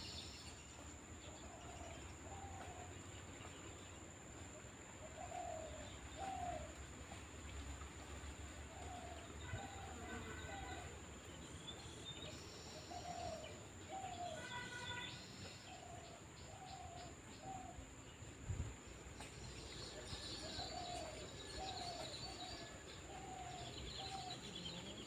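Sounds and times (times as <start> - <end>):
birds chirping: 18.9 - 25.0.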